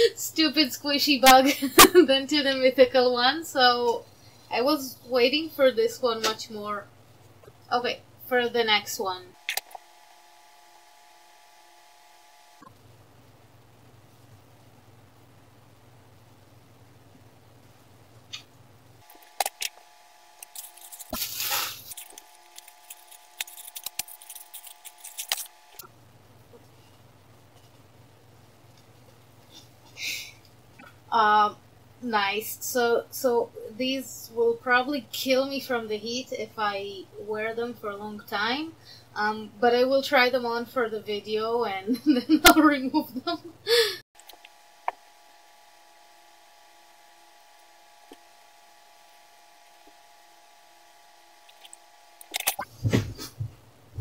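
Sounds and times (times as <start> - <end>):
electrical hum with whining tones: 0.0 - 54.0
plastic mailer bag crinkling: 20.4 - 25.8.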